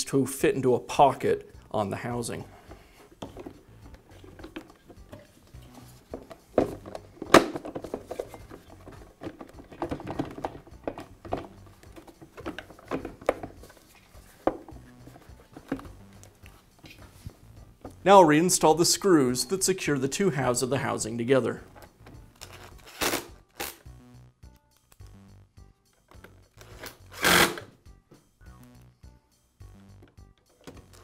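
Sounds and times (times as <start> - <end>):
plastic housing knocking and clicking: 6.2 - 13.7.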